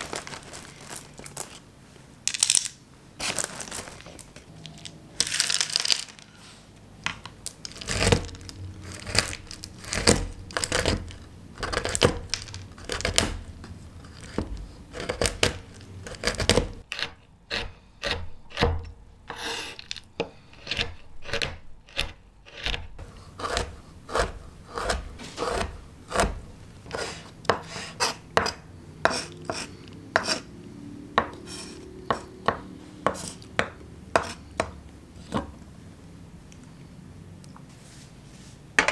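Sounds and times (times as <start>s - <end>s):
chocolate wafers clattering: 0.0s - 1.6s, 2.3s - 6.4s, 7.4s - 13.4s
knife chopping on wooden board: 14.2s - 18.8s, 20.7s - 30.4s, 31.2s - 35.5s.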